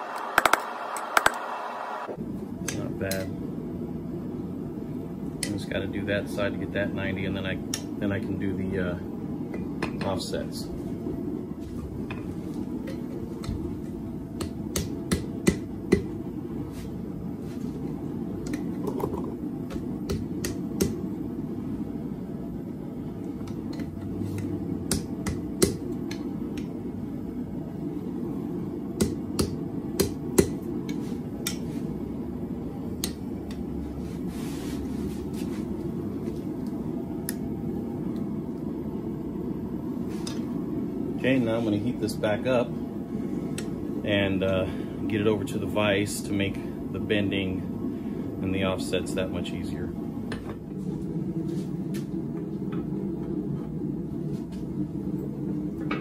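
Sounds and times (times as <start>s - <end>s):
hammer striking steel on anvil: 14.4s - 16.2s, 29.0s - 30.6s.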